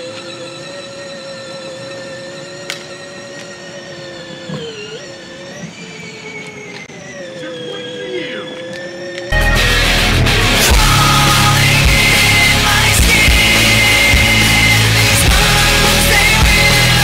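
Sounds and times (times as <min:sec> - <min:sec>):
electric toy car motor whining: 0:00.0 - 0:09.4, 0:10.6 - 0:17.0.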